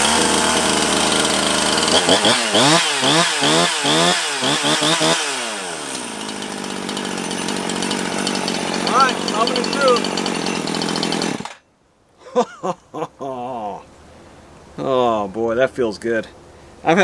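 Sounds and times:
chainsaw engine revving and idling: 0:00.0 - 0:11.6.

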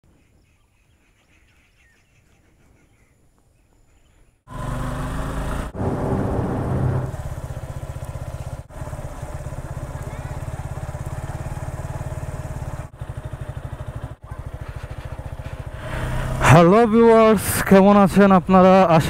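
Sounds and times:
motorcycle engine running: 0:04.5 - 0:19.0.

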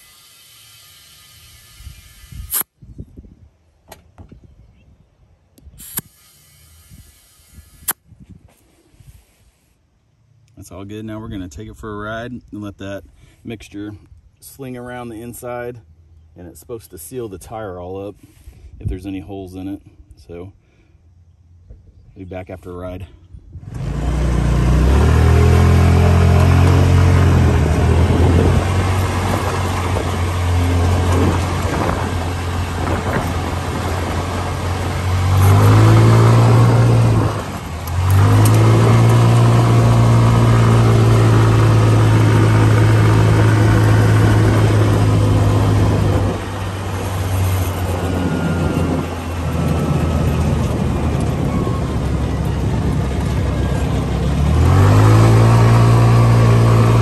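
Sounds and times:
go-kart engine running: 0:23.7 - 0:57.0.

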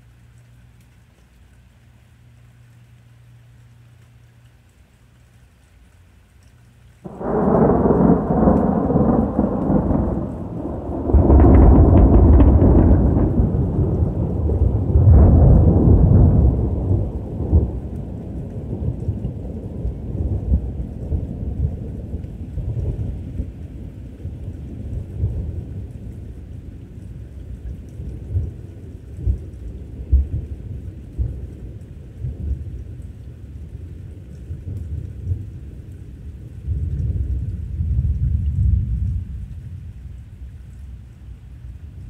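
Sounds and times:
steady rain: 0:00.0 - 0:42.0
thunderclap: 0:07.1 - 0:21.9.

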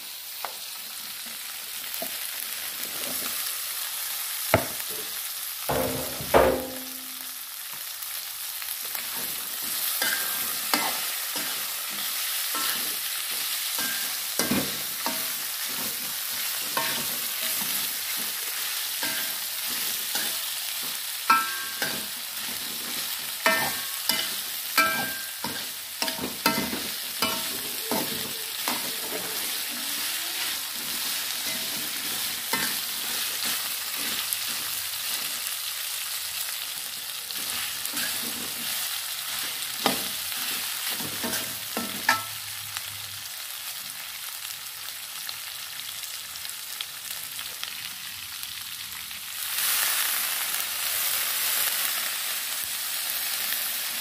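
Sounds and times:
meat sizzling in a wok: 0:00.0 - 0:54.0
metal spatula clanking on wok: 0:05.7 - 0:07.2, 0:10.0 - 0:11.6, 0:13.8 - 0:15.4, 0:16.8 - 0:17.8, 0:19.0 - 0:19.5, 0:21.3 - 0:22.2, 0:23.4 - 0:29.4, 0:31.4 - 0:32.9, 0:40.9 - 0:42.4.

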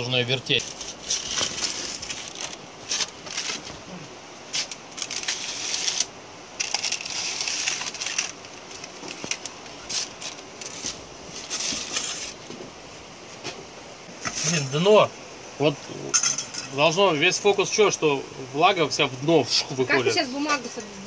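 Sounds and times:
wood fire crackling: 0:00.0 - 0:21.0
pizza peel scraping on brick: 0:06.7 - 0:08.4, 0:09.1 - 0:12.5.

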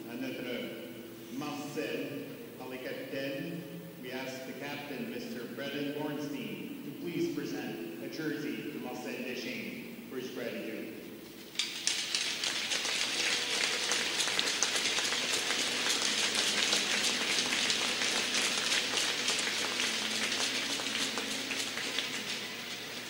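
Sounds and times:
large crowd applauding: 0:11.6 - 0:23.0.

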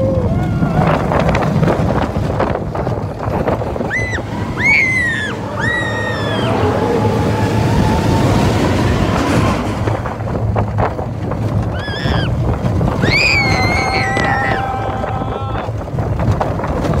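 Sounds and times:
riders screaming: 0:00.0 - 0:01.4, 0:03.7 - 0:09.9, 0:11.6 - 0:15.8
roller coaster rumbling on track: 0:00.0 - 0:17.0
track clacks: 0:00.0 - 0:17.0
wind on microphone: 0:00.0 - 0:17.0.

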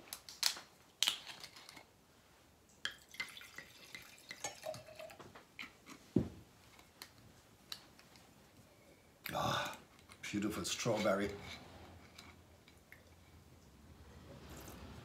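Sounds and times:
wine pouring into a glass: 0:03.0 - 0:05.2.

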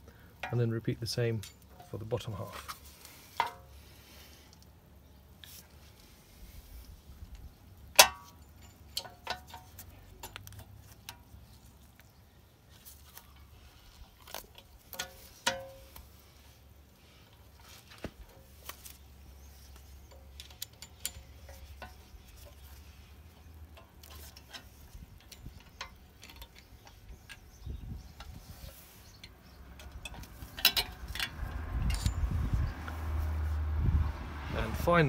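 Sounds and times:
small metallic clicks: 0:07.3 - 0:12.1, 0:18.2 - 0:33.0.

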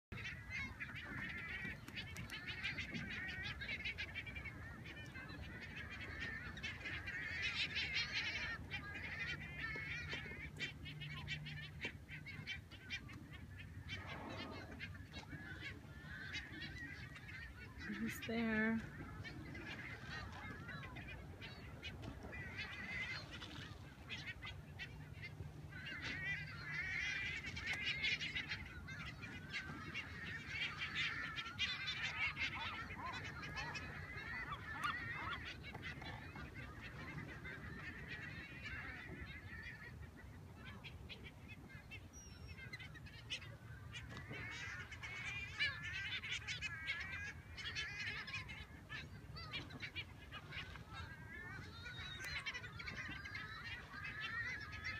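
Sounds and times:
seabirds calling: 0:00.1 - 0:54.9.

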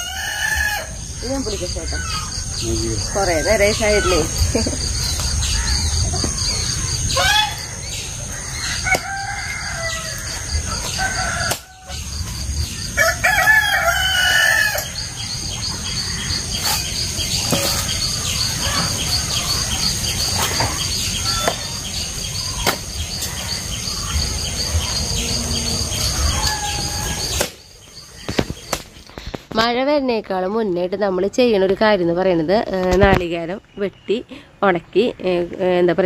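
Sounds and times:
rooster crowing: 0:00.0 - 0:01.1, 0:07.1 - 0:15.3, 0:24.8 - 0:27.4
high-pitched whine: 0:09.9 - 0:28.4.

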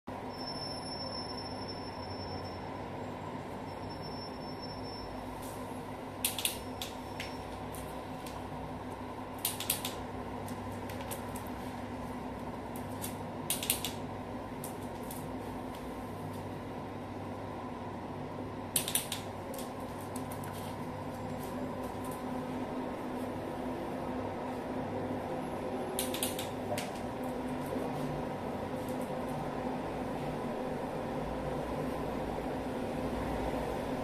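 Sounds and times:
steady low hum: 0:00.1 - 0:34.0.

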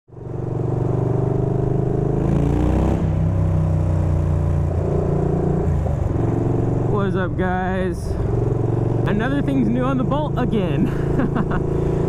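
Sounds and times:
motorcycle engine idling and revving: 0:00.1 - 0:12.0.

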